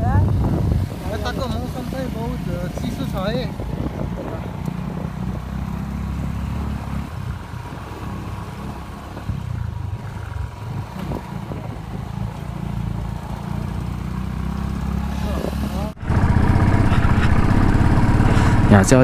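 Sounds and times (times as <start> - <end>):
motorcycle engine at low revs: 0.0 - 19.0.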